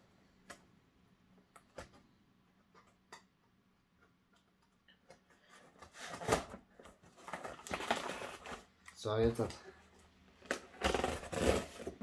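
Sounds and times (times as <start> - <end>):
packing tape and cardboard tearing: 5.9 - 8.7, 10.4 - 12.0.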